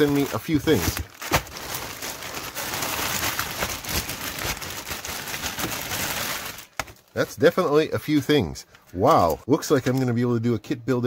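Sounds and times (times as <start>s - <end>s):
plastic bags crinkling: 0.0s - 7.2s.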